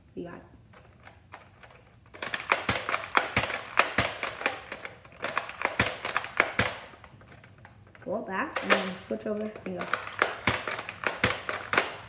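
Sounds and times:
toy blaster priming clicks: 1.3 - 7.4.

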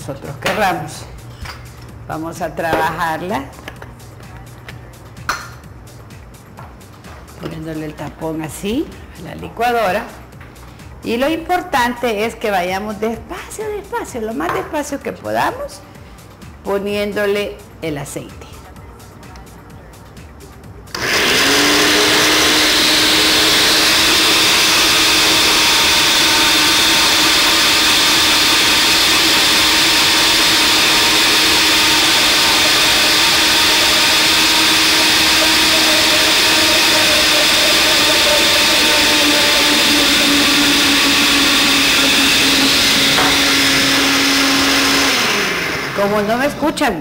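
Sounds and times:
blender motor running: 20.9 - 46.6.

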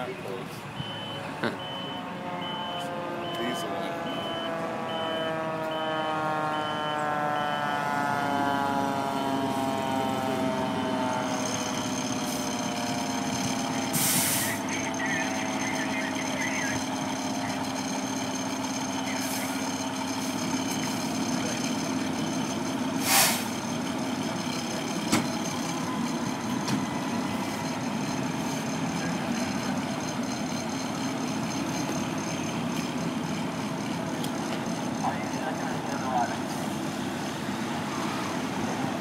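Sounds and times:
truck engine idling: 0.0 - 39.0
short sharp hiss: 23.0 - 23.5.

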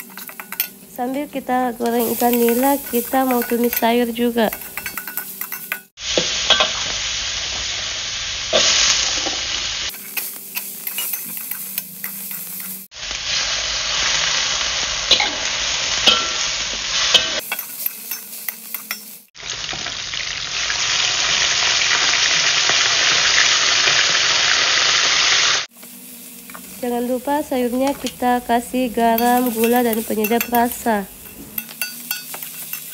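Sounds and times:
spatula scraping a pan: 0.0 - 0.7, 9.9 - 12.9, 29.2 - 32.9
food sizzling in hot oil: 0.0 - 32.9
fish deep-frying in oil: 1.4 - 32.9.

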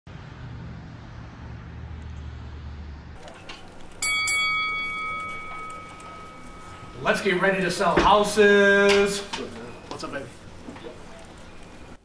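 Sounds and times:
boxing ring bell ringing: 3.2 - 9.9.

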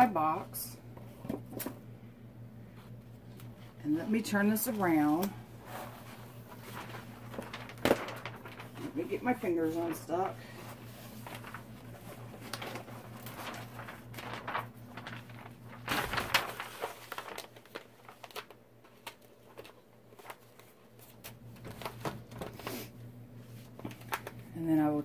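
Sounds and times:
plastic film crinkling: 4.5 - 22.7.

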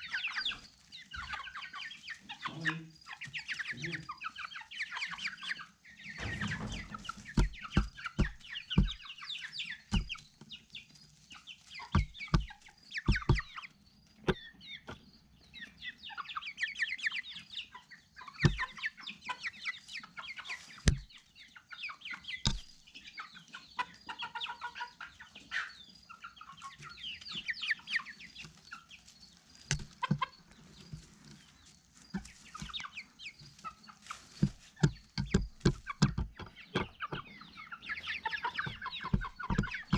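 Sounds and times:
chickens clucking: 0.0 - 39.9
sharp taps and knocks: 6.2 - 9.0, 9.9 - 10.2, 11.9 - 13.5, 18.4 - 18.7, 20.8 - 21.1, 22.4 - 22.8, 29.7 - 30.3, 34.3 - 37.3, 38.6 - 39.9.

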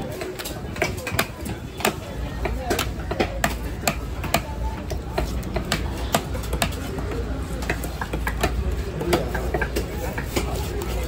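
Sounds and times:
faint market chatter: 0.0 - 11.0.

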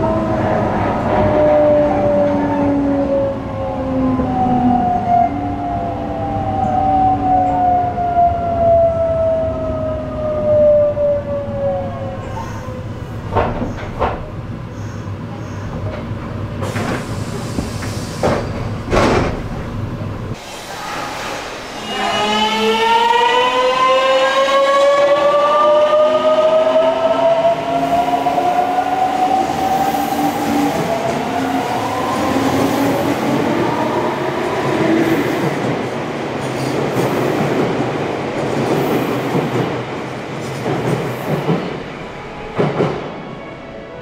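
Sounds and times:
train wheels rolling on rail: 12.2 - 22.2, 22.8 - 44.0.

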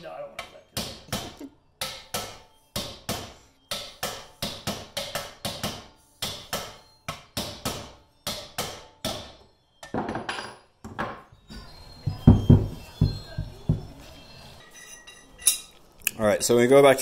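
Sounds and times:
hammer striking metal: 0.8 - 11.2.

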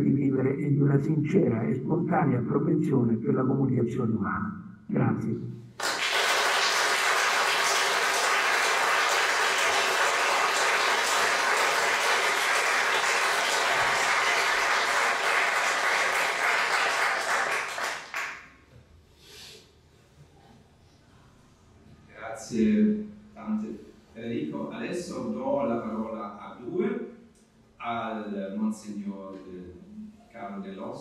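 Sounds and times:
audience applauding: 5.8 - 18.5.

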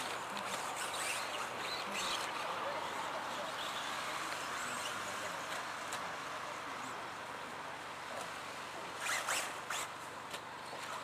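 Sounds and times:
rc cars hissing on dirt: 0.0 - 7.2, 8.9 - 10.0.

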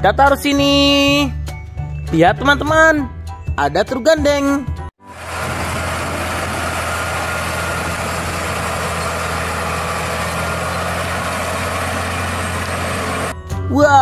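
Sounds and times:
truck diesel engine running: 5.0 - 13.3.

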